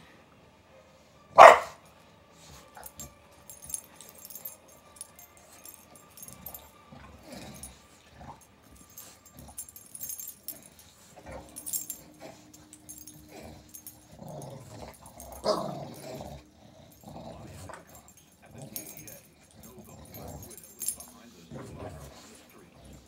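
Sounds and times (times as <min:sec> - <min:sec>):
metal tags jingling: 0:02.8 - 0:23.0
dog growling grunts: 0:06.9 - 0:08.4, 0:13.1 - 0:20.8, 0:21.4 - 0:23.0.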